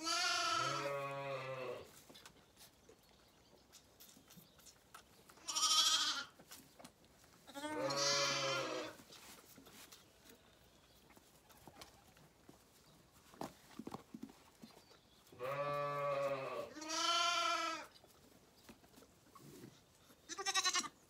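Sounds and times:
lambs bleating: 0.0 - 1.9, 5.4 - 6.4, 7.5 - 9.0, 15.4 - 17.9, 20.3 - 21.0.

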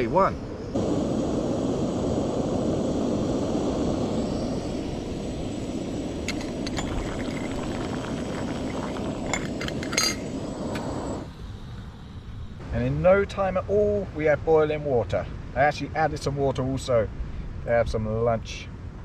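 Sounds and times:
gas stove hissing: 0.0 - 12.2.

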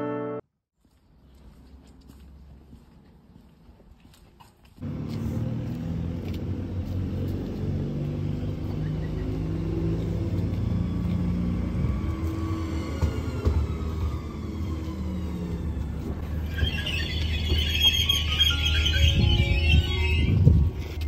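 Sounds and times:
train rumbling into station: 4.8 - 21.0.

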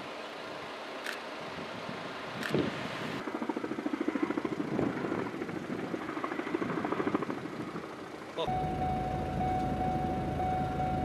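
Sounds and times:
helicopter rotor beating: 3.2 - 11.0.

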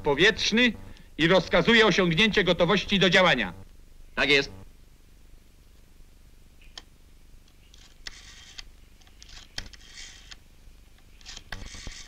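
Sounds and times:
rotary dial whirring: 0.4 - 1.7, 7.7 - 10.4, 11.0 - 12.0.

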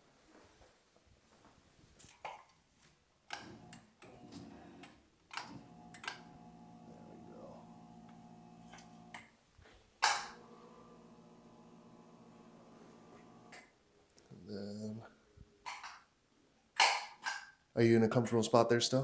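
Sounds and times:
massage gun motor humming: 3.4 - 9.2, 10.3 - 13.6.

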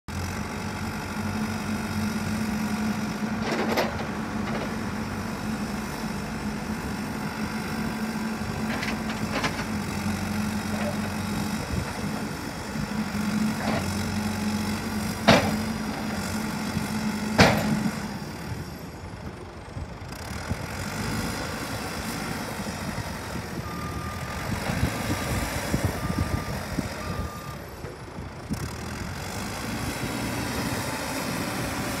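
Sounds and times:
diesel engine running: 0.1 - 32.0
reversing alarm beeping: 23.6 - 27.7.

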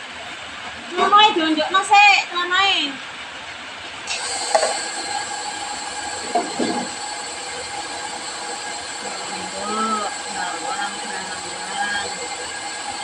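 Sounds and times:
blender whining: 4.1 - 13.0.

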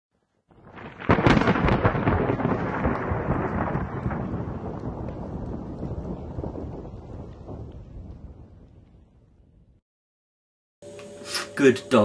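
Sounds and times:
crackling crash with low rumble: 0.5 - 9.8.

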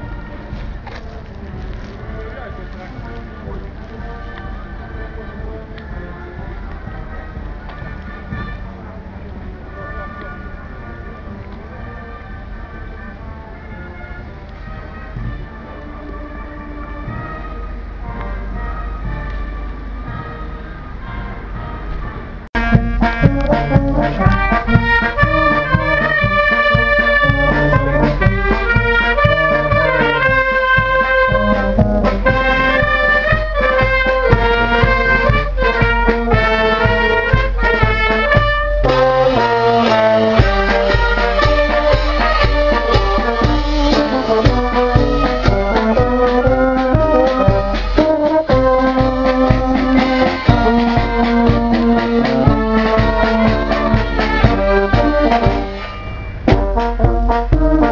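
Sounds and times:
trumpets and euphoniums: 0.0 - 57.9
cymbals: 14.6 - 57.9
bass drum beat: 22.6 - 55.8, 56.4 - 57.9.

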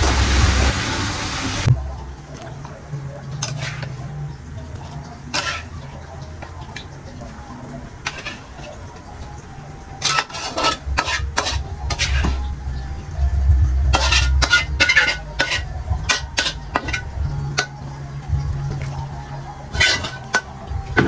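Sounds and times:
pots and dishes clattering: 3.3 - 4.0, 5.2 - 7.0, 8.0 - 9.1, 9.9 - 12.5, 13.9 - 17.8, 19.7 - 21.0
low rumble: 11.7 - 14.4.

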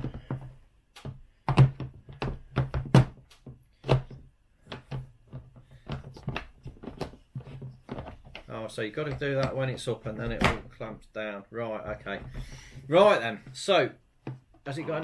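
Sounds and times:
plastic knocks and clicks: 0.0 - 10.7, 14.2 - 14.7.

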